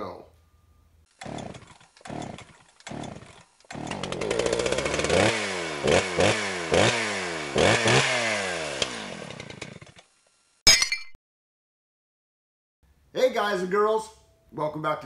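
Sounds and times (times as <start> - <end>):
chainsaw engine revving: 1.1 - 10.1.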